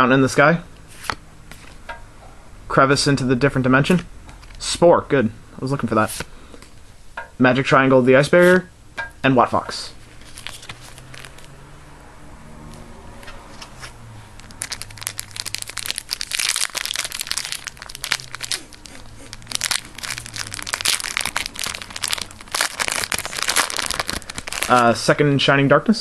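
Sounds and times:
foil pack crinkling and tearing: 10.2 - 11.5, 14.4 - 25.0.

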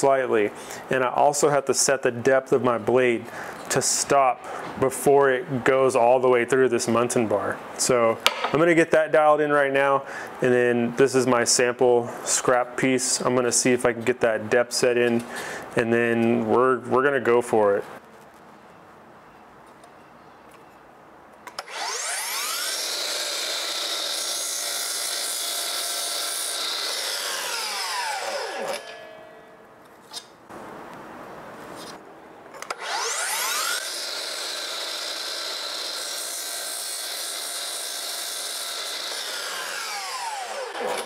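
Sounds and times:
saw blade cutting wood: 21.5 - 30.3, 32.6 - 41.0
miter saw motor whine: 21.6 - 29.2, 32.6 - 41.0.

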